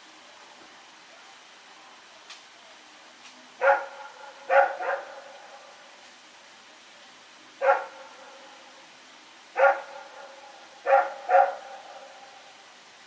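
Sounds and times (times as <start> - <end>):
dog barking: 3.6 - 5.7, 7.6 - 8.7, 9.6 - 12.4.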